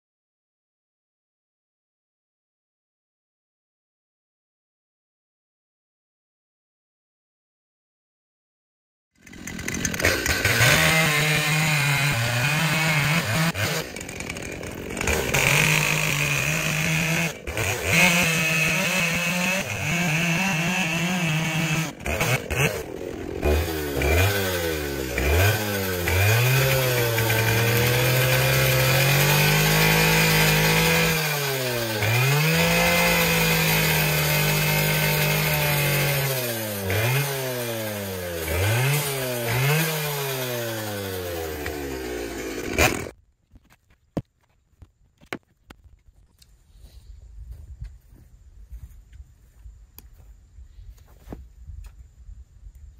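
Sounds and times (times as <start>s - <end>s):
chainsaw cutting log: 9.2s - 43.2s.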